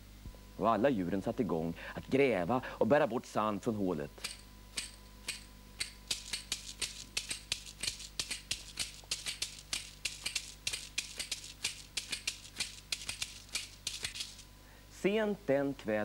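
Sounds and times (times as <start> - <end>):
hand percussion rattling: 4.2 - 14.4.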